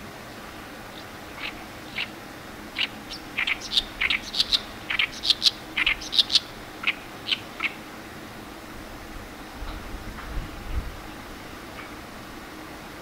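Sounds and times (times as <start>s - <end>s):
reed warbler singing: 0.5s - 7.9s.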